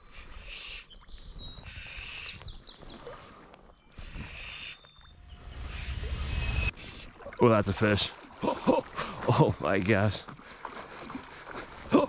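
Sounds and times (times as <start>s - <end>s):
small birds chirping: 0.0s - 6.7s.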